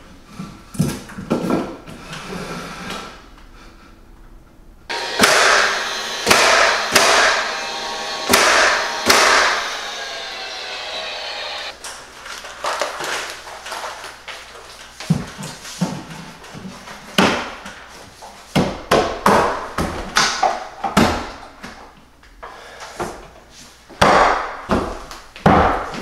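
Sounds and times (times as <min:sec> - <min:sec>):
sharp knocks on wooden boards: 0:04.9 - 0:09.7, 0:24.0 - 0:25.9.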